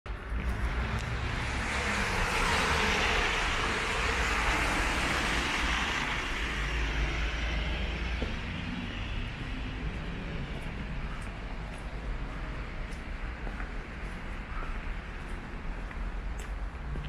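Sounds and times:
low traffic rumble: 0.1 - 17.0
vehicle passing: 0.3 - 12.9.

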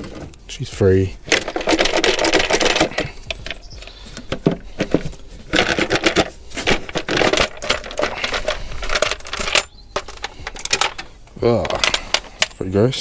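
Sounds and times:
metal and plastic parts knocking: 1.2 - 12.7.

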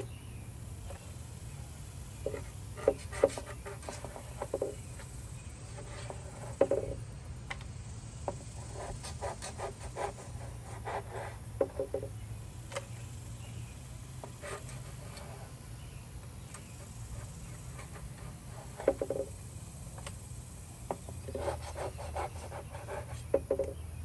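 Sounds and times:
knife cutting on plastic board: 2.2 - 4.8, 20.9 - 23.7.

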